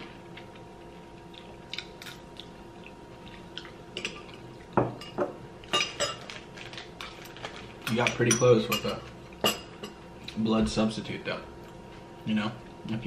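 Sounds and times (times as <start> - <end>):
chewing: 0.3 - 4.8.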